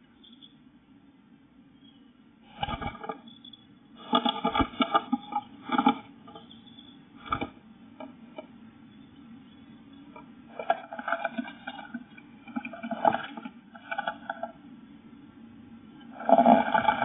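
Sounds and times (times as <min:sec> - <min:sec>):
faint steady hum: 0:00.0 - 0:17.0
bird scratching and tapping on wood: 0:07.2 - 0:08.1.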